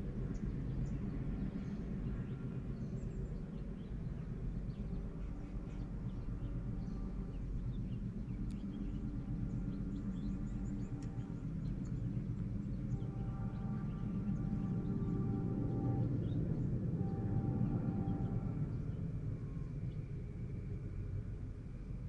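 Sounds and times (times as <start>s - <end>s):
low engine drone: 0.0s - 22.0s
small birds chirping: 0.2s - 19.0s.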